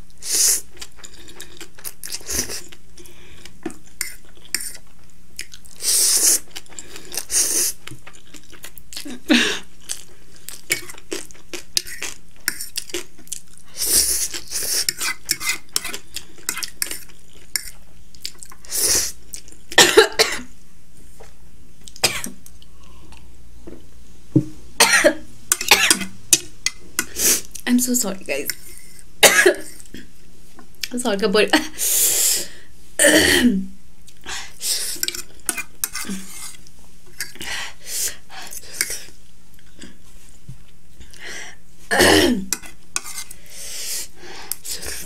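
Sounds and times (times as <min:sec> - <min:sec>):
person coughing: 0:19.8 - 0:20.5, 0:24.8 - 0:26.0, 0:29.2 - 0:29.8, 0:33.0 - 0:33.6, 0:41.9 - 0:42.5.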